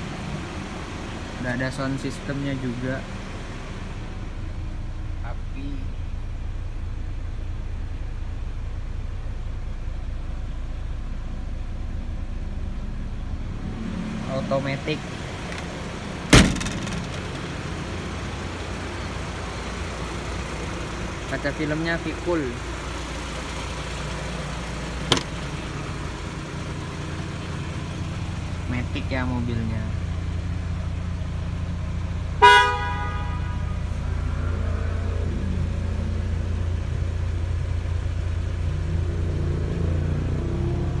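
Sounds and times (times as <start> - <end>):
diesel engine idling: 0.0 - 41.0
car door slamming: 15.4 - 17.6, 25.0 - 25.6.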